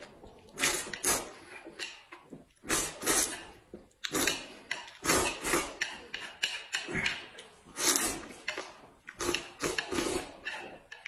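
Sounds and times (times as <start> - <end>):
man slurping noodles: 0.6 - 1.6, 2.6 - 8.5, 9.2 - 10.8.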